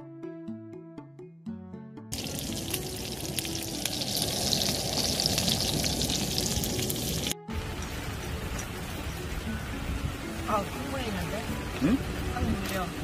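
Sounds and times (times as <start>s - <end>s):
soft music: 0.0s - 13.0s
meat sizzling in a frying pan: 2.2s - 7.4s.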